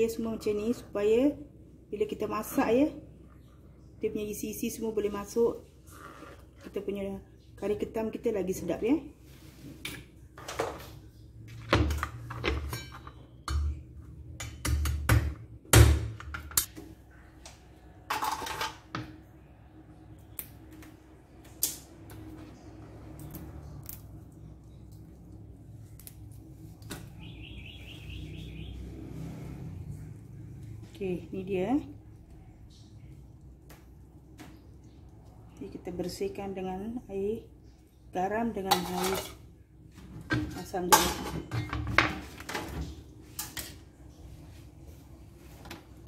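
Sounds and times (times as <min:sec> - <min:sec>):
crabs clattering on steel sink: 0:38.6 - 0:39.5, 0:40.2 - 0:43.8.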